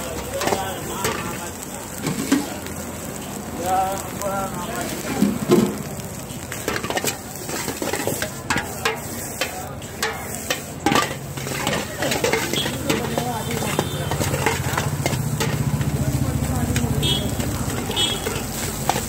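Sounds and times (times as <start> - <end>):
food frying in a pan: 0.0 - 19.0
utensil knocking and scraping pan: 6.6 - 19.0.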